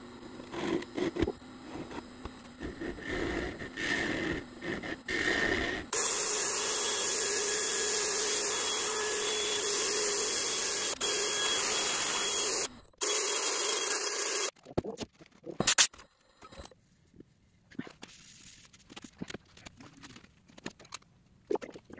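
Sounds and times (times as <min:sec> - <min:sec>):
drill sanding wood: 0:02.6 - 0:14.5.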